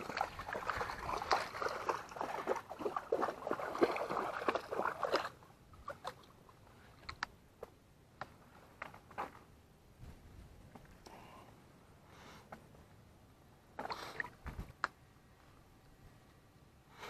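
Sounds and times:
dog splashing through water: 0:00.0 - 0:06.3.

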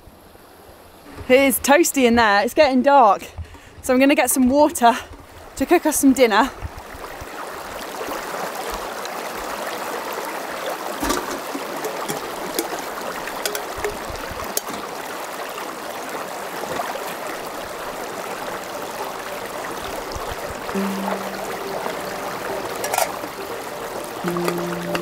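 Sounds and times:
stream running over stones: 0:00.1 - 0:25.0
water poured into metal pot: 0:11.0 - 0:15.0, 0:22.7 - 0:23.2.

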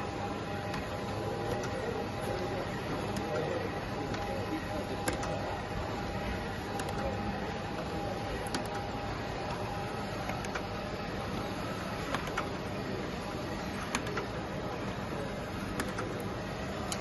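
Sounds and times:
printer mechanical whir: 0:00.0 - 0:17.0
sharp machine clicks: 0:05.0 - 0:05.5, 0:06.6 - 0:07.3, 0:08.4 - 0:08.9, 0:12.0 - 0:12.6, 0:13.8 - 0:14.4, 0:15.7 - 0:17.0.

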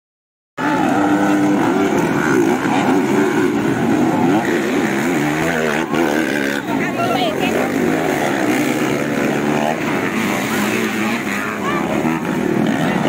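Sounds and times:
motocross bike engines revving: 0:00.6 - 0:13.0.

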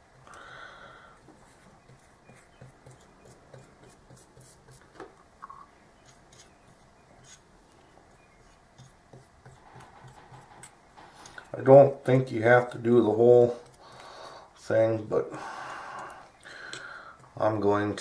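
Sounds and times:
brush rubbing on metal plate: 0:08.1 - 0:11.6.

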